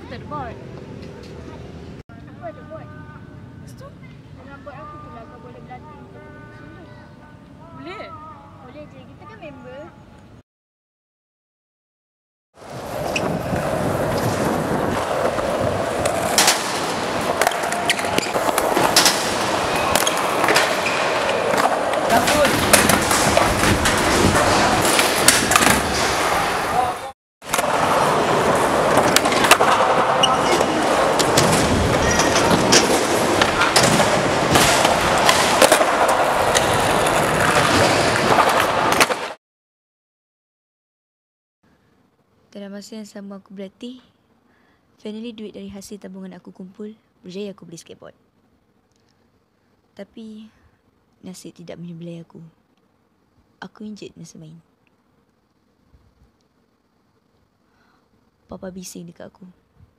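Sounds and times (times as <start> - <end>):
skateboard wheels rolling on concrete: 12.6 - 39.4
skateboards clacking: 12.6 - 39.4.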